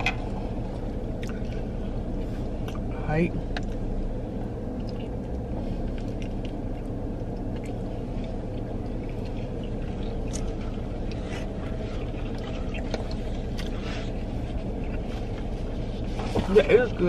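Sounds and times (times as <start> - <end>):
low hum inside a car: 0.0 - 17.0.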